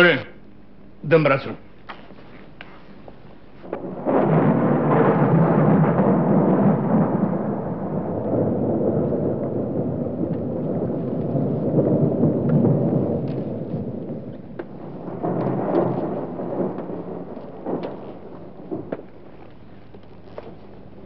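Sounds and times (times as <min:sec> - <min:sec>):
loud rolling thunder: 0:03.6 - 0:19.7.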